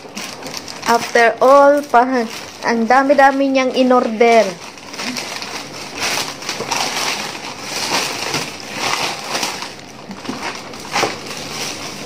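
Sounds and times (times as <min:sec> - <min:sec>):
plastic mailer bag crinkling: 0:00.0 - 0:12.0.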